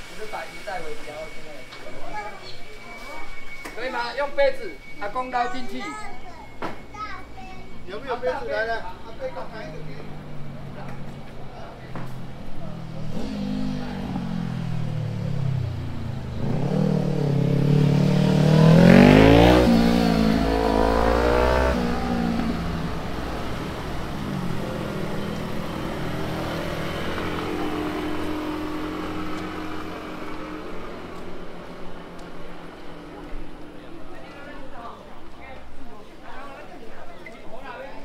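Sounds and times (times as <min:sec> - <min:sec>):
vehicle engine accelerating past: 0:12.1 - 0:34.4.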